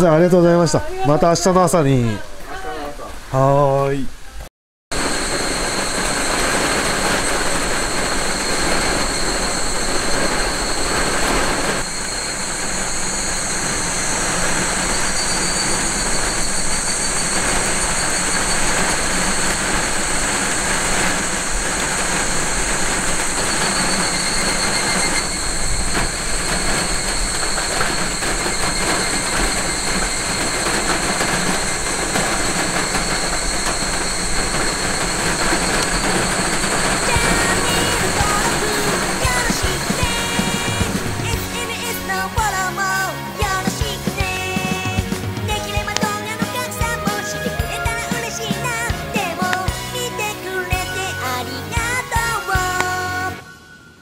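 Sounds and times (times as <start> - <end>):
rain on car roof: 13.7 - 46.8
high-pitched tones: 32.0 - 54.0.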